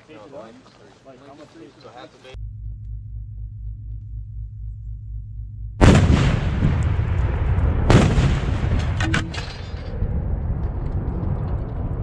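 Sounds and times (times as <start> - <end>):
explosive blasts rumbling: 2.4 - 12.0
debris clattering down: 8.6 - 9.9.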